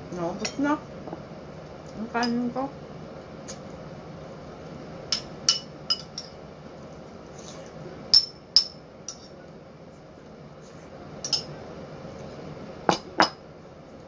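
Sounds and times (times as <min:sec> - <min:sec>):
cutlery clinking on ceramic bowl: 0:05.1 - 0:06.4, 0:11.2 - 0:11.5.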